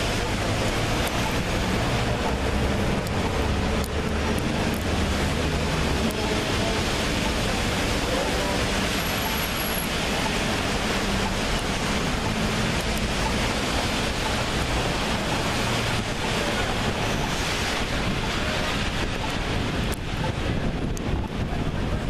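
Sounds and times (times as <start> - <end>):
wind on microphone: 17.9 - 22.0.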